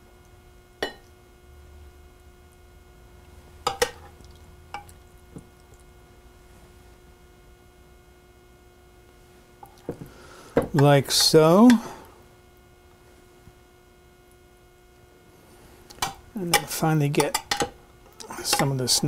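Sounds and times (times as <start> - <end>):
faint steady hum: 0.0 - 19.0
soft wet food sounds: 1.9 - 7.2.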